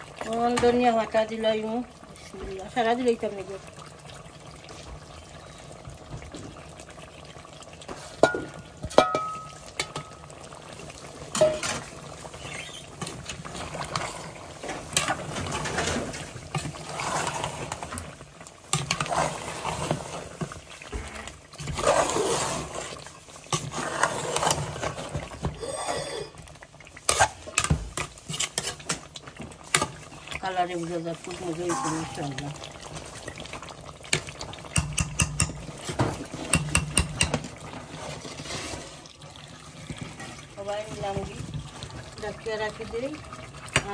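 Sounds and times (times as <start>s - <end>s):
spoon clinking on pot: 8.2s - 10.3s, 31.7s - 32.8s, 34.7s - 35.8s, 36.5s - 37.4s
spoon stirring and scraping: 11.3s - 18.1s, 18.7s - 20.6s, 21.6s - 25.5s, 26.9s - 30.2s, 31.2s - 39.0s.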